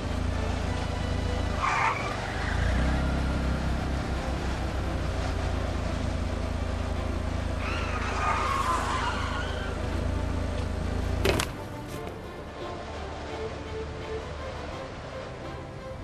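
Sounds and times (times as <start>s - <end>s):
car engine humming: 0.0s - 16.0s
tire squeal: 0.5s - 3.9s, 7.4s - 10.4s.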